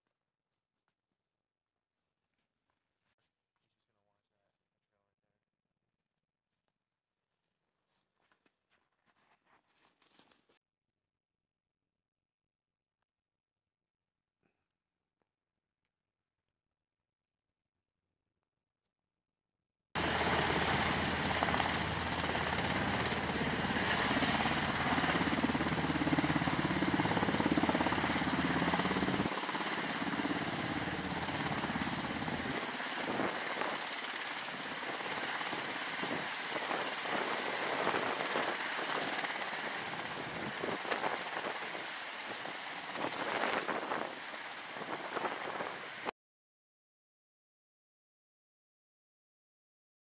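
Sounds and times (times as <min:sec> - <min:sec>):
helicopter rotors and engines: 0:20.0 - 0:46.1.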